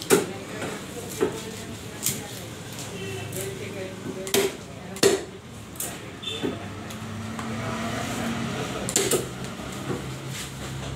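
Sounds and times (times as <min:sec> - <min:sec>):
knife chopping on wooden block: 0:04.3 - 0:05.3, 0:08.9 - 0:09.3.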